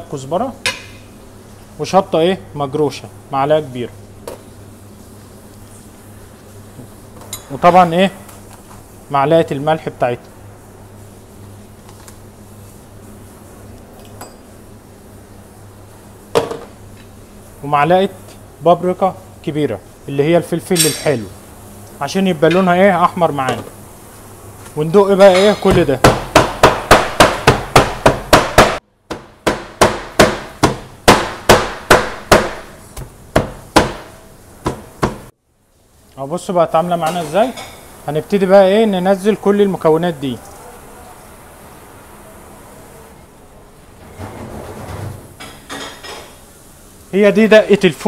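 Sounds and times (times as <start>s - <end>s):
low kitchen hum: 0.0s - 48.0s
meat mallet pounding on cutting board: 25.7s - 35.3s
kitchenware clinking on worktop: 45.4s - 46.4s.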